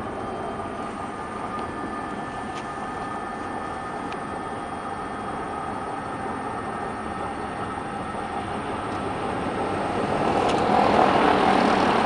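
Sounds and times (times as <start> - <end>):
road and wind noise in vehicle: 0.0 - 12.0.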